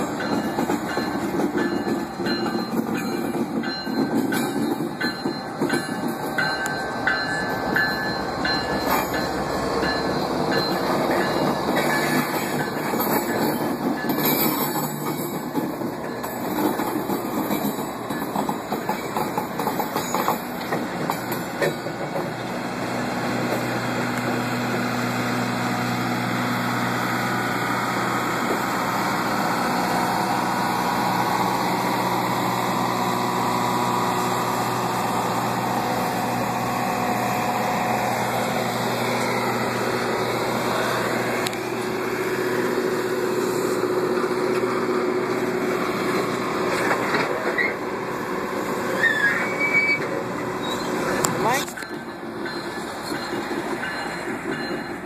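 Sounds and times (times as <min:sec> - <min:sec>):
train wheels rumbling on rails: 0:00.0 - 0:55.0
high wheel squeals: 0:47.4 - 0:47.9, 0:48.8 - 0:55.0.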